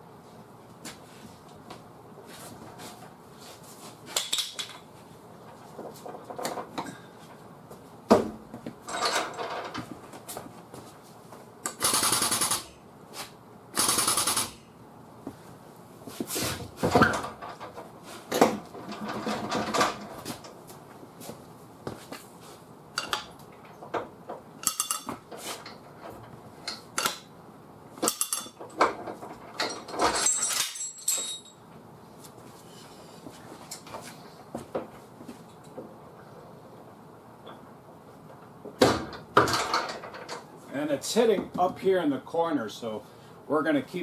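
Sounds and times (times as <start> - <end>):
metal chain clanks and knocks: 8.9 - 9.8, 18.8 - 20.2, 24.6 - 25.2, 28.0 - 31.6, 39.1 - 40.4.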